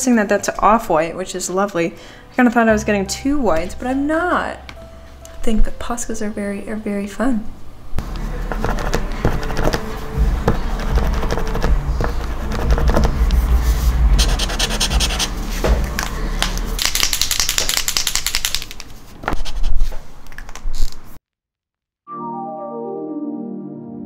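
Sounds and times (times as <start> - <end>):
marker rubbing strokes on paper: 8.1 - 15.7, 19.3 - 20.0
low thuds: 15.6 - 16.2.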